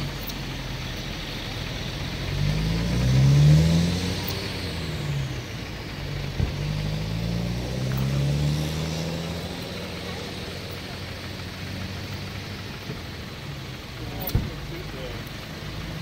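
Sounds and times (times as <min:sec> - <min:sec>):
vehicle engine running: 0:00.0 - 0:16.0.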